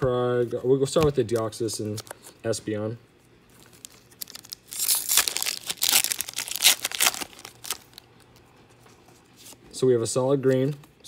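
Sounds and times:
wrapper tearing and crinkling: 0:03.6 - 0:08.3.

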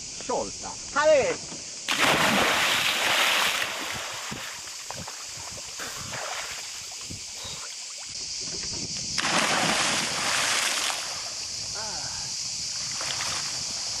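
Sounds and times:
body splashing into water: 0:01.9 - 0:07.1, 0:09.2 - 0:11.4, 0:12.9 - 0:13.7
seawater churning and fizzing: 0:01.9 - 0:08.2, 0:09.2 - 0:11.7.

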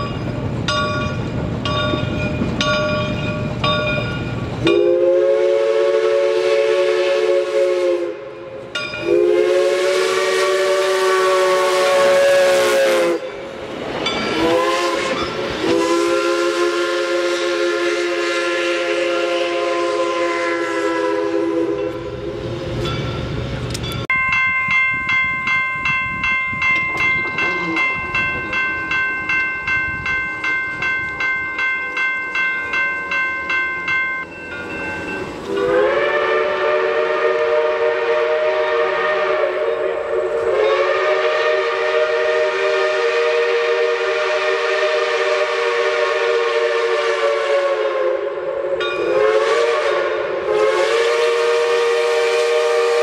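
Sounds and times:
bell ringing: 0:00.0 - 0:04.8, 0:22.8 - 0:35.7
steam locomotive rumbling: 0:00.0 - 0:53.0
steam locomotive whistle: 0:04.6 - 0:13.6, 0:14.3 - 0:22.8, 0:26.9 - 0:29.1, 0:35.0 - 0:53.0.

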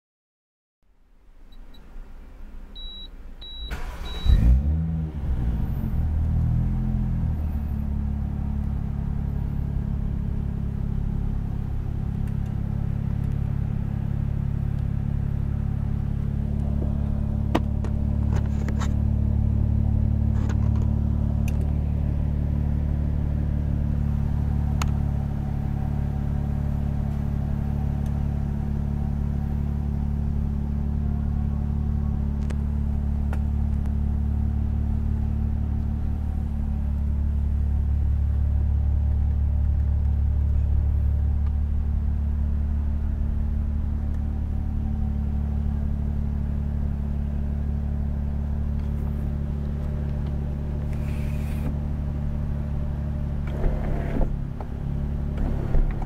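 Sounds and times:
car engine starting and idling: 0:01.1 - 0:56.0
short beeps: 0:02.8 - 0:04.4.

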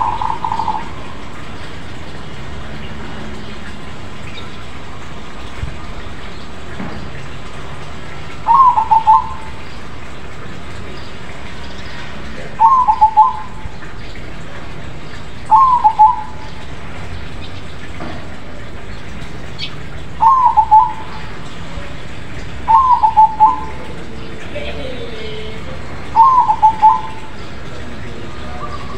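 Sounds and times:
dove cooing: 0:00.0 - 0:01.4, 0:08.4 - 0:09.6, 0:12.5 - 0:13.9, 0:15.4 - 0:16.6, 0:20.2 - 0:21.9, 0:22.6 - 0:25.3, 0:26.0 - 0:28.9
steady background hiss: 0:07.5 - 0:28.9.

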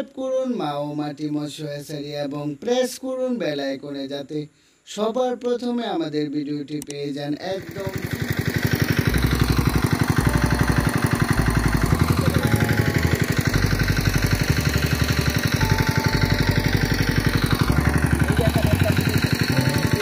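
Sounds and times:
water pump engine throbbing: 0:07.6 - 0:20.0.

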